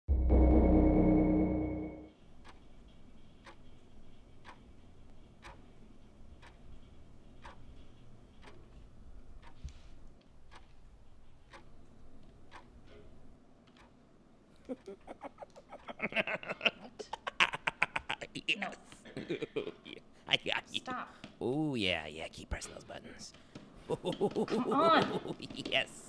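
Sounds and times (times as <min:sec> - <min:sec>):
music: 0:00.1 - 0:02.1
clock ticking: 0:02.4 - 0:09.7, 0:10.3 - 0:14.0, 0:14.7 - 0:18.2.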